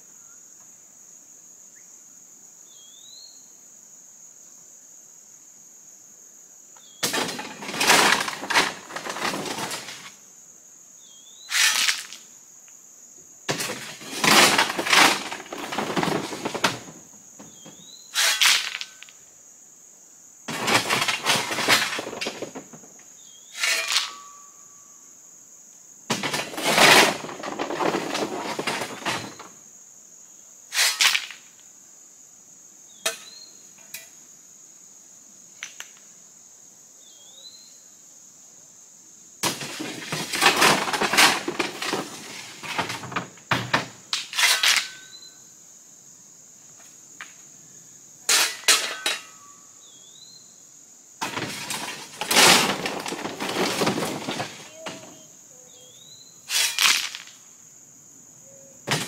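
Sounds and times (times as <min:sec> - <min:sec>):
high insect drone: 0:00.0 - 0:59.0
shovel scraping truck bed: 0:07.1 - 0:10.1, 0:11.5 - 0:12.2, 0:13.5 - 0:17.6, 0:18.2 - 0:18.9, 0:20.5 - 0:22.6, 0:23.5 - 0:24.3, 0:26.1 - 0:29.5, 0:30.7 - 0:31.3, 0:39.4 - 0:43.7, 0:44.3 - 0:45.2, 0:48.3 - 0:49.5, 0:51.2 - 0:55.2, 0:56.5 - 0:57.2
stones clattering on ground: 0:13.5 - 0:16.9, 0:39.4 - 0:43.8.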